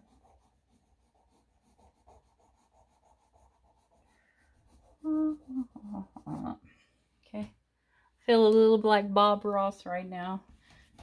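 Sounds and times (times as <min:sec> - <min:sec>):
pencil scratching on paper: 0:00.0 - 0:06.6
person's voice: 0:05.0 - 0:06.6.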